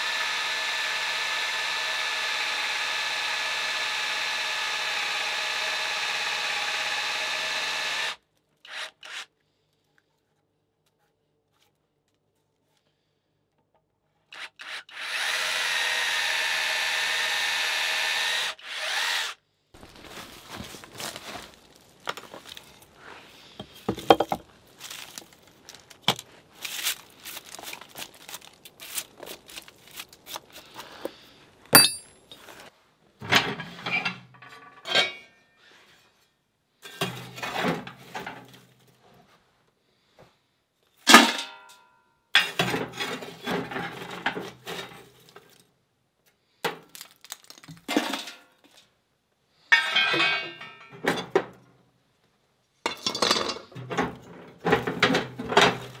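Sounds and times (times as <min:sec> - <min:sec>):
ringing metallic hits: 0:31.8 - 0:32.2
metal clanks and scrapes at stove: 0:33.2 - 0:36.2, 0:36.8 - 0:38.6, 0:49.7 - 0:51.5.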